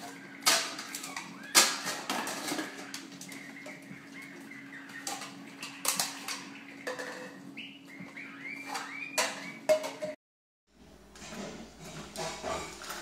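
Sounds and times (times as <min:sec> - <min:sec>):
parrot chirping: 0:00.0 - 0:09.7
household objects knocking and clattering: 0:09.2 - 0:10.2.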